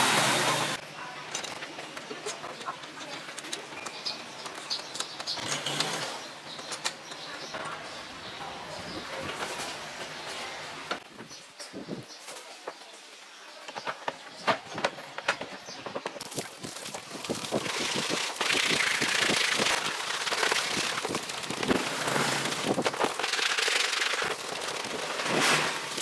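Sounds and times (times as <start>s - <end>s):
hands scrubbing plastic: 16.2s - 26.0s
hose water hissing on plastic: 16.2s - 26.0s.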